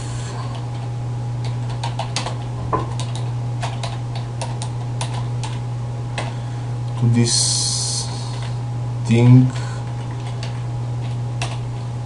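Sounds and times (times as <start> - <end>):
steady low hum: 0.0 - 12.0
keyboard typing clicks: 1.4 - 5.6.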